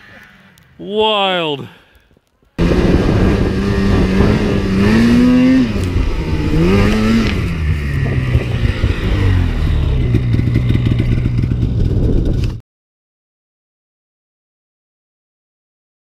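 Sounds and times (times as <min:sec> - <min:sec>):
snowmobile engine revving: 0:02.6 - 0:12.4.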